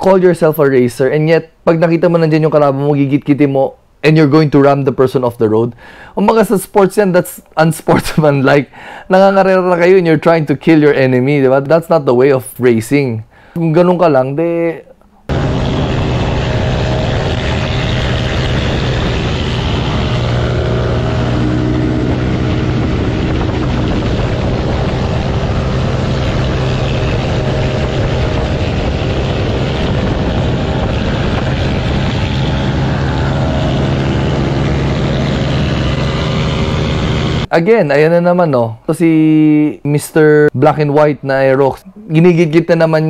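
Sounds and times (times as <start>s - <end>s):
low hum: 15.0s - 37.5s
scooter engine drone: 15.3s - 37.5s
wind rushing: 15.3s - 37.5s.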